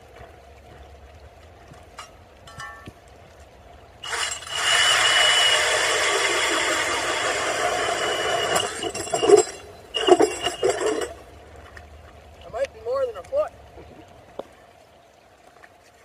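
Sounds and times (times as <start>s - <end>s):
cordless drill grinding through ice: 4.0s - 11.2s.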